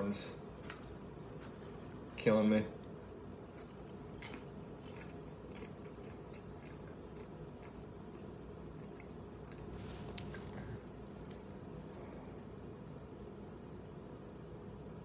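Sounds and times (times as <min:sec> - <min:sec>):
low room hum: 0:00.0 - 0:15.0
person chewing popcorn: 0:03.3 - 0:11.5.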